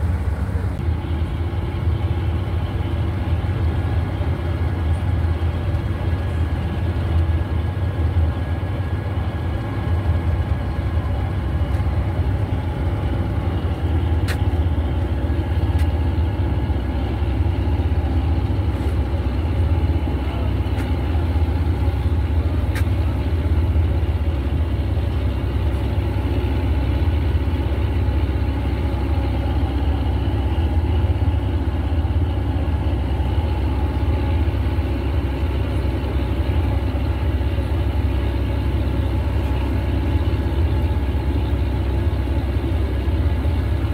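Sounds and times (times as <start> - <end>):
boat engine humming: 0.0 - 43.9.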